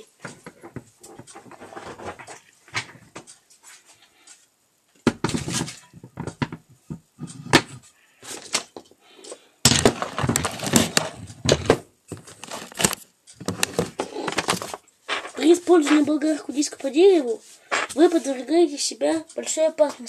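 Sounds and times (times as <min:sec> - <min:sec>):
hard objects clattering: 0:05.0 - 0:16.2, 0:17.7 - 0:18.1.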